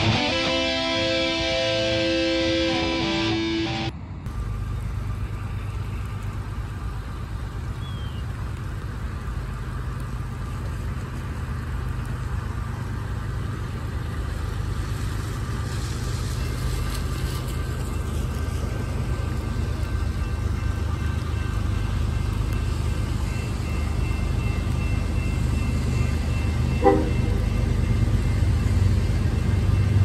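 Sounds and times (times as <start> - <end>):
vehicle engine rumble: 0.0 - 30.0
tyres swishing on wet pavement: 4.3 - 26.0
rain hissing: 4.3 - 26.4.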